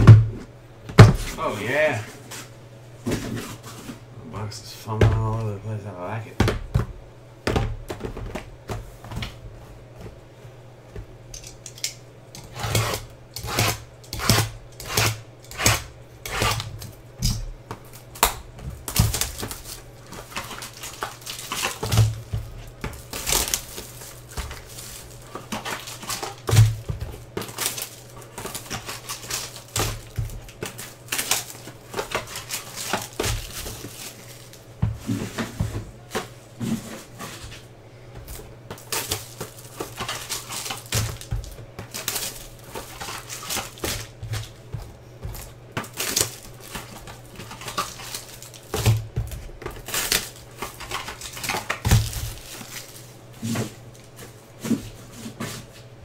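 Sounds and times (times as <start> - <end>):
cardboard boxes knocking on table: 6.4 - 9.4
cardboard and wrapper handling: 18.7 - 37.6, 38.3 - 54.4.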